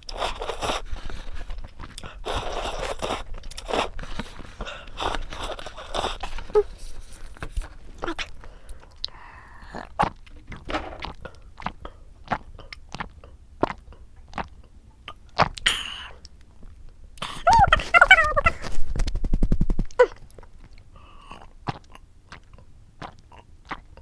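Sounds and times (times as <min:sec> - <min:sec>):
sipping water: 0:00.0 - 0:16.4
person chewing noodles: 0:00.0 - 0:17.4, 0:20.1 - 0:24.0
cat climbing thuds: 0:10.4 - 0:11.2.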